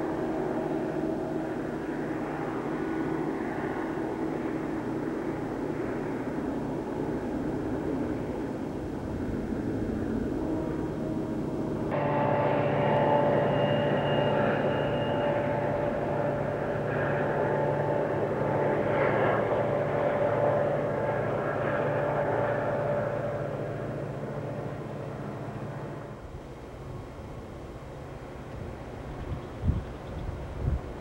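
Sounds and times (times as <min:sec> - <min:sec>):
diesel locomotive engine drone: 0:00.0 - 0:31.0
train rumble: 0:00.0 - 0:31.0.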